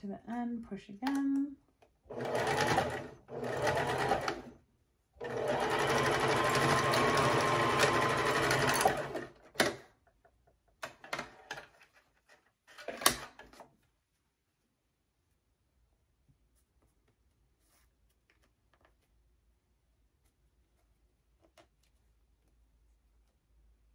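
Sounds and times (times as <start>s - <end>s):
sewing machine stitching: 2.1s - 4.5s, 5.2s - 9.8s.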